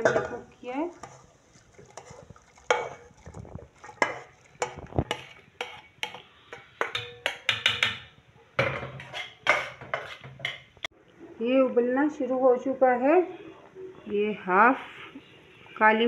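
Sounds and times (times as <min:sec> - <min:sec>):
spatula knocking on metal wok: 0:06.8 - 0:10.7.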